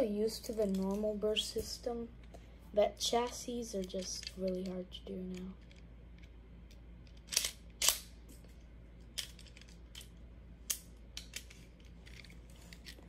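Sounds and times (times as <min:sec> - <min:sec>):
plastic spinning top parts clicking: 0:03.8 - 0:06.3.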